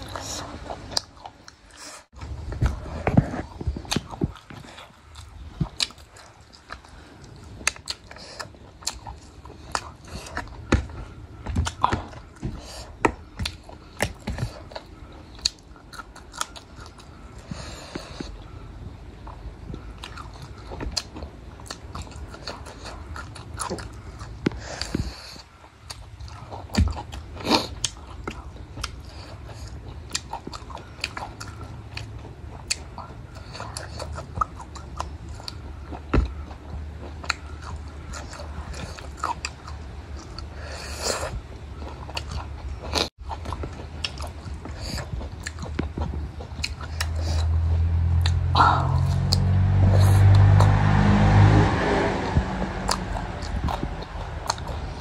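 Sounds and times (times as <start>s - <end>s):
steady low hum: 0.0s - 55.0s
low rumble: 45.6s - 55.0s.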